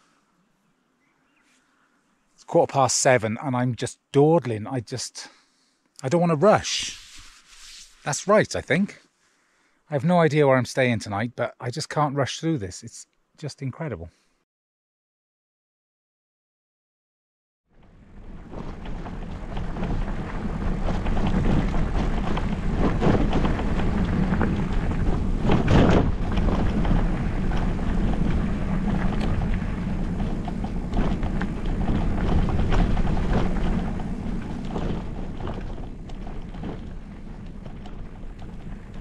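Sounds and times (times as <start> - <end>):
bike rattling over bumps: 17.8 - 39.0
bike tyres crunching on dirt: 17.9 - 39.0
wind buffeting microphone: 18.0 - 39.0.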